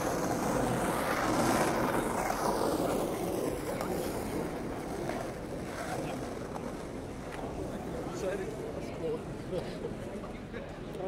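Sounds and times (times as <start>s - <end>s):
traffic noise: 0.0s - 5.8s.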